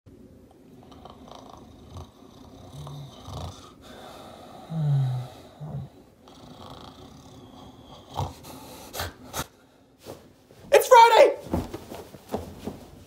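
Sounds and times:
man snoring: 0:00.8 - 0:08.7.

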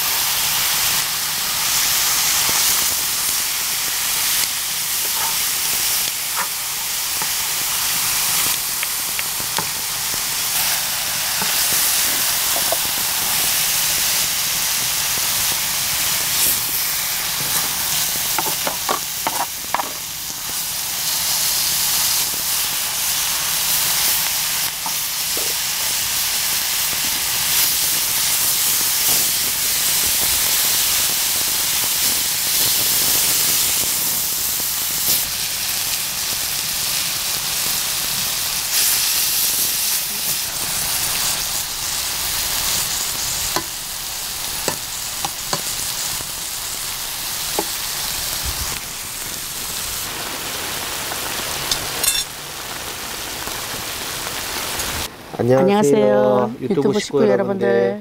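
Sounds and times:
meat sizzling on a griddle: 0:00.0 - 0:55.1.

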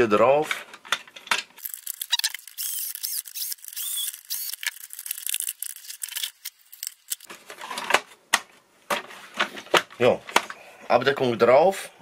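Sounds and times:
electric screwdriver whining: 0:01.6 - 0:06.5.

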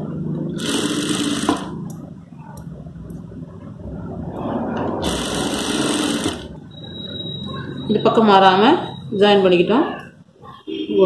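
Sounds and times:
industrial sewing machine stitching: 0:00.5 - 0:01.8, 0:05.0 - 0:06.6.

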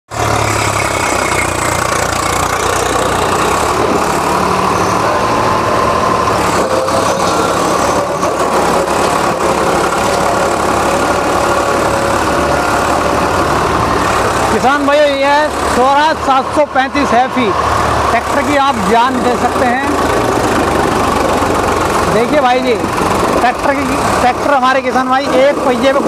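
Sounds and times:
tractor diesel engine running: 0:00.1 - 0:26.0
tyre churning dirt: 0:00.2 - 0:16.6.

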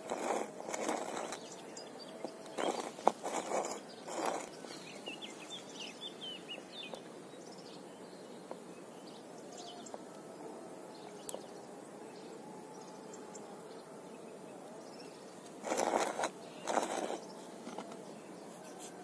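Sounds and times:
steady background hush: 0:00.0 - 0:19.0
bird chirping: 0:00.1 - 0:19.0.

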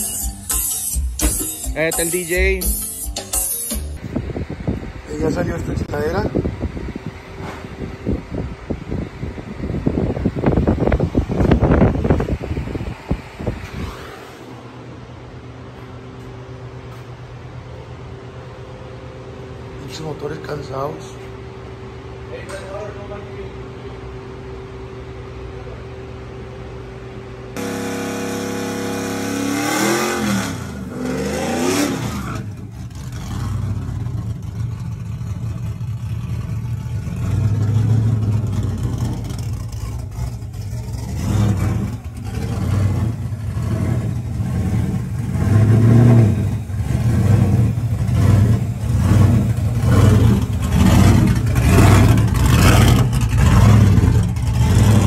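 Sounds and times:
pickup truck engine rumbling: 0:00.0 - 0:13.7, 0:27.2 - 0:55.0.

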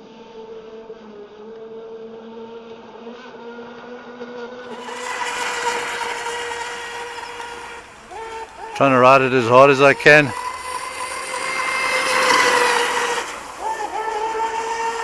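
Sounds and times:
electric boat motor whine: 0:00.0 - 0:15.0
water spray hiss: 0:04.7 - 0:15.0.

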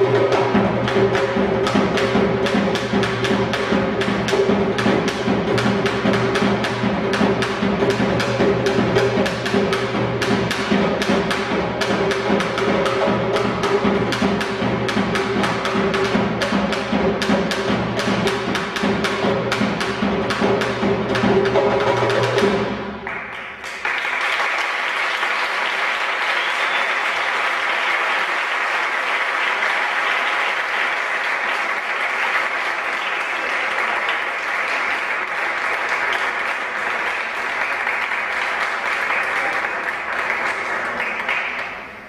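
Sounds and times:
fast drum beat with sticks: 0:00.0 - 0:22.9.

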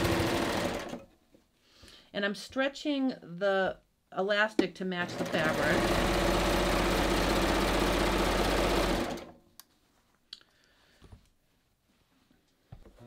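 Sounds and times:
serger sewing machine running: 0:00.0 - 0:01.0, 0:05.0 - 0:09.3.

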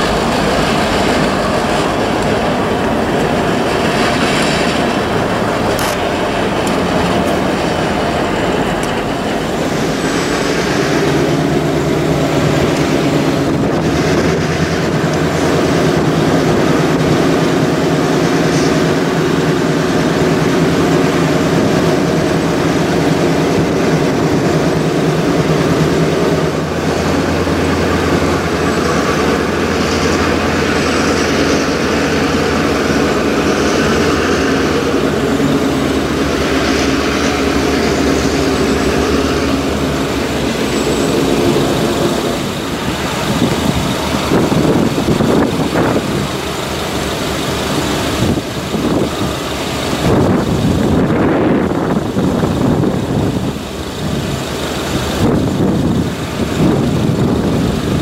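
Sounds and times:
diesel locomotive engines droning: 0:00.0 - 0:58.0.

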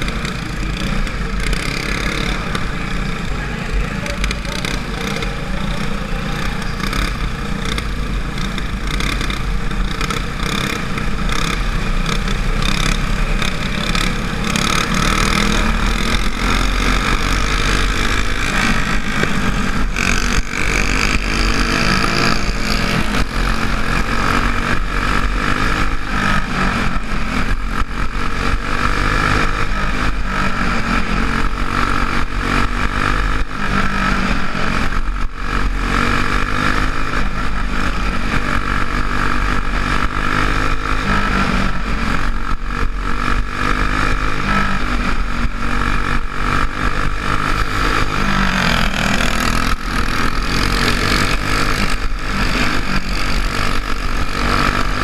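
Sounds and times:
go-kart engine at full throttle: 0:00.0 - 0:55.0.

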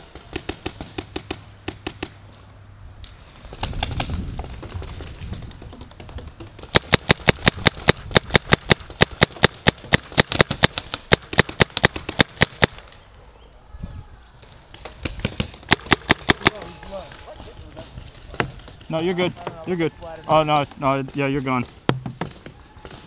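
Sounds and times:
paintball marker firing rapidly: 0:06.0 - 0:12.8, 0:15.0 - 0:16.6.

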